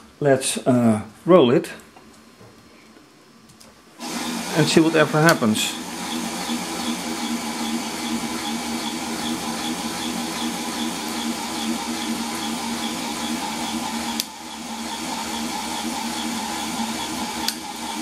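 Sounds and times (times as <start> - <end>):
motor click: 5.2 - 5.4.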